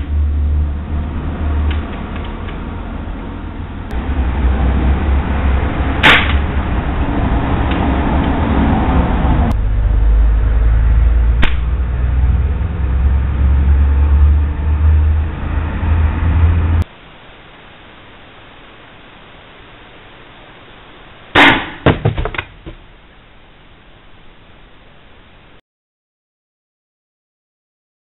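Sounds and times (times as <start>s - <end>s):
low rumble: 0.0s - 16.9s
air rifle shots: 6.0s - 6.6s, 21.4s - 22.0s.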